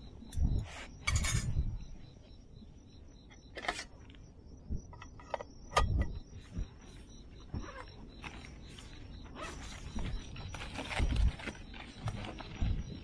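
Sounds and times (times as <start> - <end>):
metal cookware clinking: 1.0 - 1.6.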